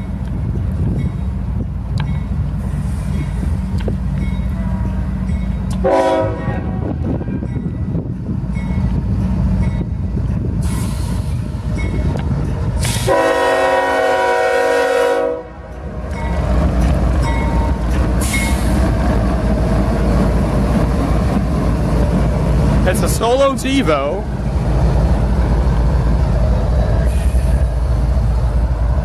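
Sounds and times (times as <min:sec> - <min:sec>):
locomotive horn blasts: 0:05.8 - 0:07.0, 0:13.0 - 0:15.6.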